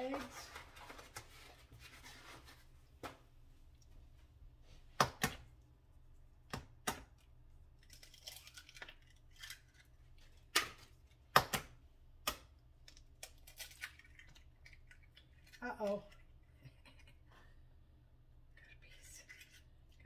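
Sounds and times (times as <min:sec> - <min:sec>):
eggshell crackling: 0:05.6 - 0:11.5, 0:12.2 - 0:16.6.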